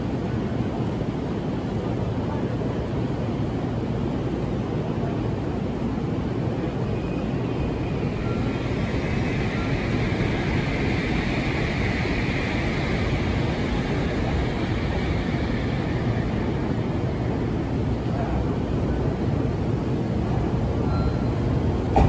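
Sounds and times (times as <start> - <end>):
train wheels rumbling on rails: 6.3 - 22.0
high-pitched train hiss: 7.2 - 17.4.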